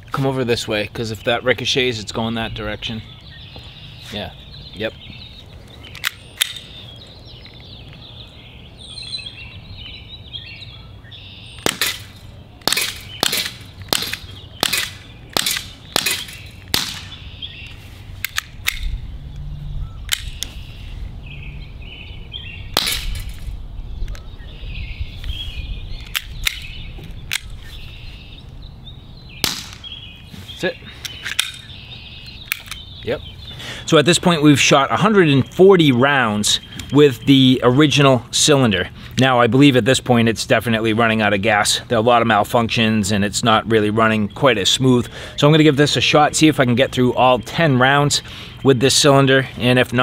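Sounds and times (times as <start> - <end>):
air pistol shots: 11.6 - 17.2, 22.8 - 23.4, 29.4 - 30.0.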